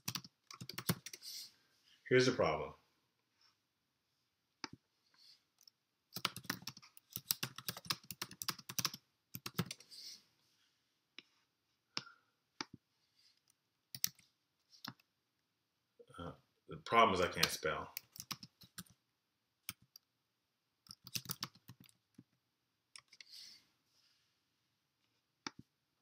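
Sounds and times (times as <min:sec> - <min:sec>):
typing on a computer keyboard: 0:00.0 - 0:01.2, 0:06.1 - 0:09.8, 0:13.9 - 0:14.2, 0:17.4 - 0:18.9, 0:19.6 - 0:20.0, 0:20.9 - 0:22.0.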